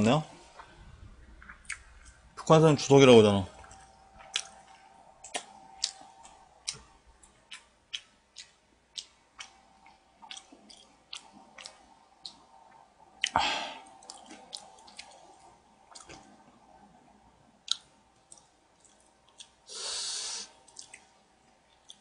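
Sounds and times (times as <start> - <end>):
chewing: 1.4 - 2.2, 3.5 - 16.6, 17.6 - 19.7, 20.6 - 22.0
short hiss: 19.7 - 20.5.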